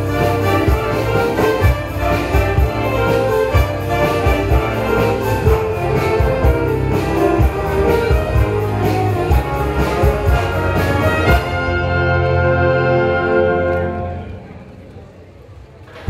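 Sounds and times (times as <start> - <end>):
drum kit beat: 0.0 - 12.0
wind band playing rock: 0.0 - 14.5.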